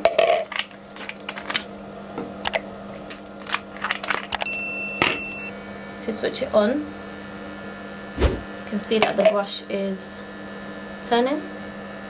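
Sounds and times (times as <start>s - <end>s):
low hum: 8.2s - 8.5s.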